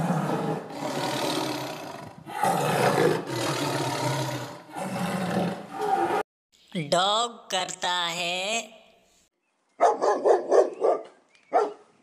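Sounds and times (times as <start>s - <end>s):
tiger roaring: 0.0s - 6.2s.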